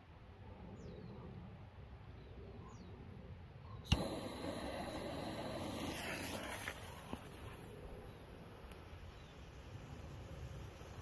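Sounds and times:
loud rushing hiss: 3.9 - 7.4.

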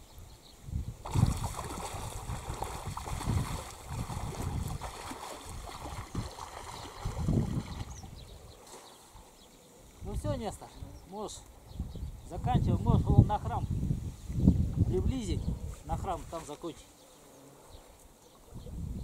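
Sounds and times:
low surges of water or wind: 0.2 - 16.6
water lapping and sloshing: 1.0 - 9.4.

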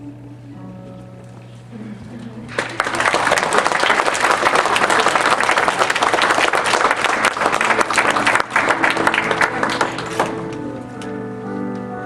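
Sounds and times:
audience applauding: 2.5 - 10.8.

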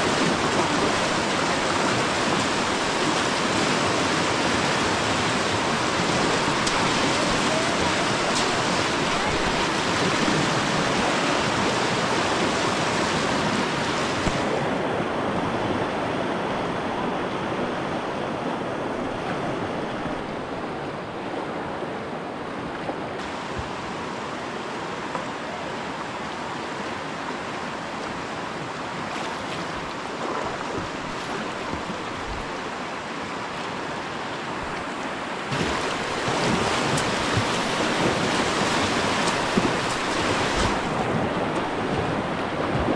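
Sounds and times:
river rapids rushing: 0.0 - 42.9.

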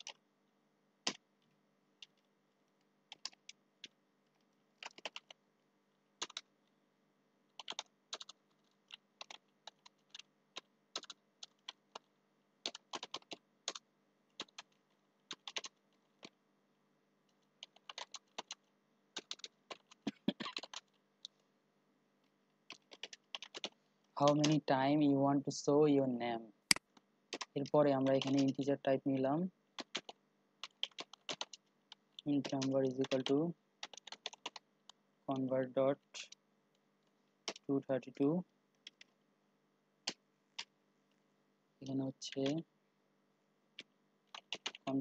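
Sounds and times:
computer keyboard typing: 0.0 - 0.2, 2.0 - 2.3, 3.1 - 5.4, 6.2 - 6.5, 7.5 - 16.4, 17.3 - 21.4, 22.6 - 24.7, 26.7 - 35.5, 37.4 - 39.2, 43.8 - 45.0.

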